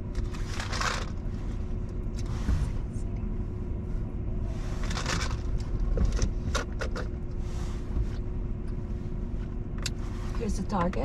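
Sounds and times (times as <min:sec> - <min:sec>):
car idling: 0:00.0 - 0:11.0.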